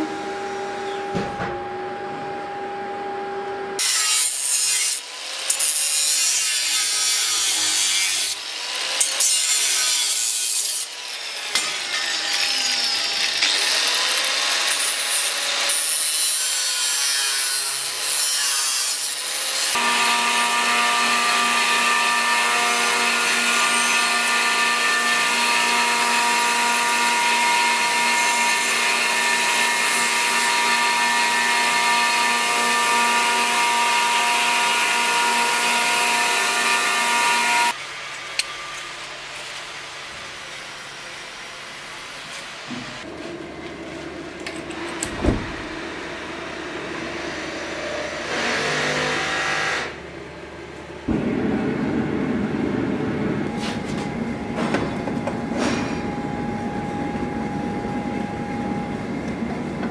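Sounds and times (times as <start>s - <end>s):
belt grinder grinding steel: 3.8s - 37.8s
angle grinder cutting steel: 3.8s - 39.8s.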